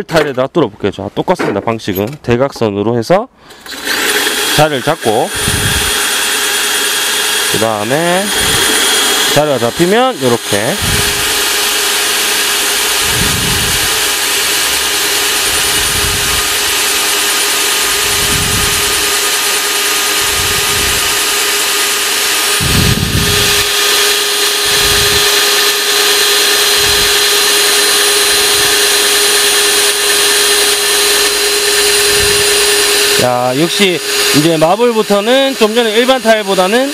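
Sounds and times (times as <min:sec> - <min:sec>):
drill grinding into tile: 0:03.5 - 0:36.9.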